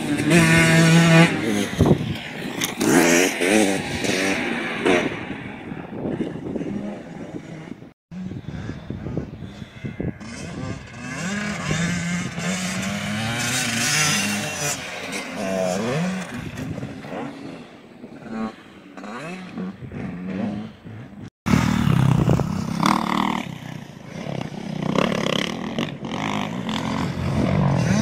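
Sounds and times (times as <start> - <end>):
dirt bike engines revving: 0.0 - 28.0.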